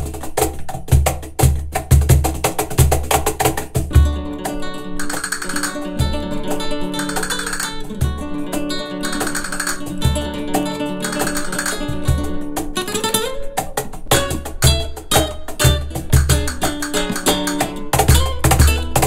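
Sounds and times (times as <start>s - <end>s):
acoustic guitar: 0.0s - 19.0s
low cajon strokes: 0.0s - 19.0s.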